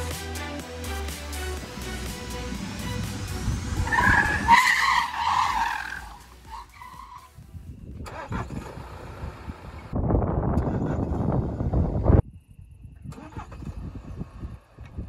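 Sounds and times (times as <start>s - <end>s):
tyres squealing: 3.8s - 7.4s.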